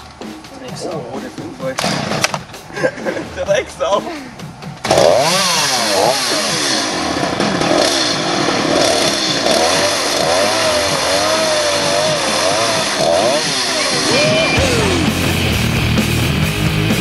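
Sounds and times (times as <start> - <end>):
chainsaw cutting wood: 4.8 - 14.8.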